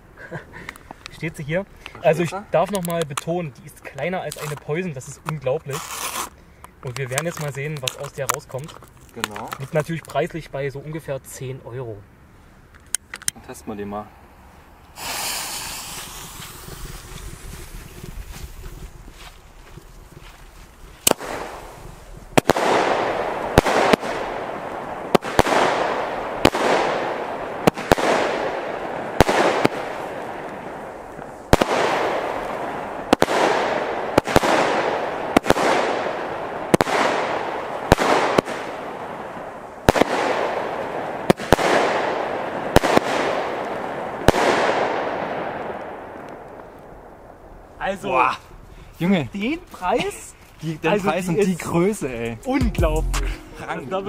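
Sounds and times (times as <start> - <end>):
firework bangs with rushing noise: 15.0 - 18.8, 21.0 - 46.1.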